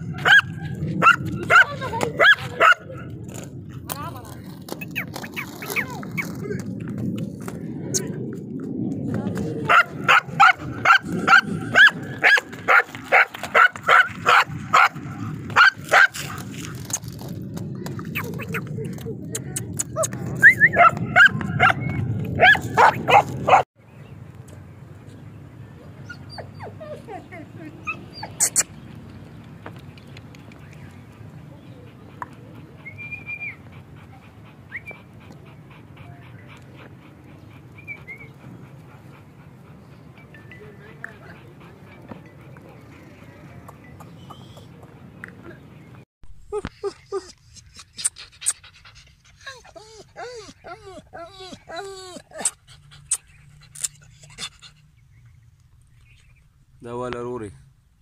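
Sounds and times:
dog barking: 0.2 - 2.9, 9.7 - 15.0, 22.4 - 23.6
dog panting: 31.1 - 46.0, 46.9 - 55.0.

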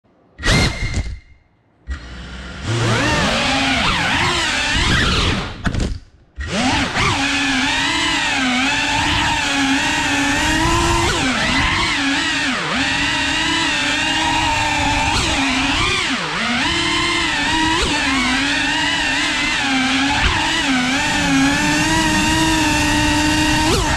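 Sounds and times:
quadcopter motors whining: 1.9 - 5.6, 6.4 - 23.9.

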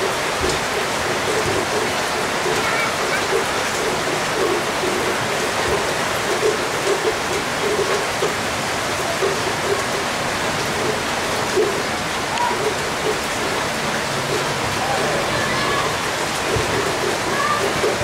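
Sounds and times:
heavy rain: 0.0 - 18.0
raindrop taps: 0.0 - 18.0.

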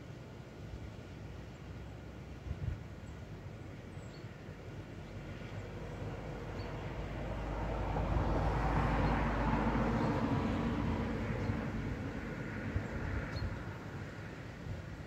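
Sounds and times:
van passing: 6.2 - 12.9.

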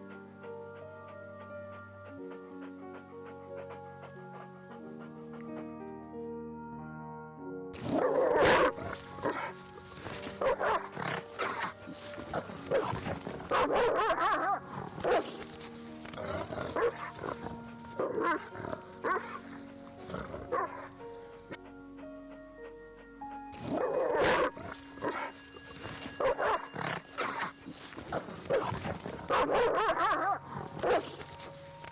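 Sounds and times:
background music with held notes: 0.0 - 31.9
dog barking: 7.9 - 9.6, 10.4 - 15.5, 16.3 - 21.0, 23.6 - 25.4, 26.0 - 31.3.

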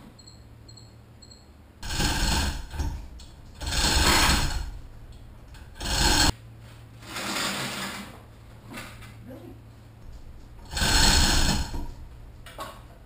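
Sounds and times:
wooden boards scraping on concrete: 1.8 - 3.0, 3.6 - 4.8, 5.6 - 6.4, 10.7 - 11.9.

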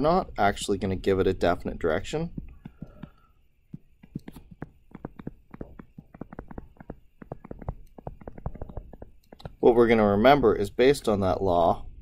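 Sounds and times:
stylus tapping on tablet screen: 2.3 - 9.7.

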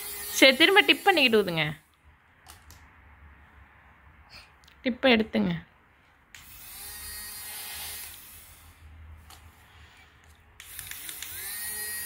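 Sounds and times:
small fan motor whirring: 0.0 - 1.5, 6.4 - 8.8, 9.7 - 12.0.

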